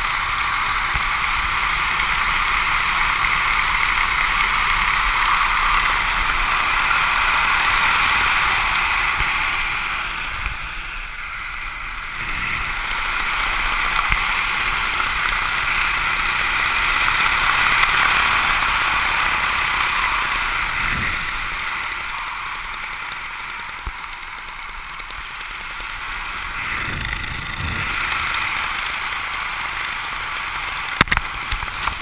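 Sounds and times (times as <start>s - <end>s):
wind rushing across microphone: 26.5s - 28.4s.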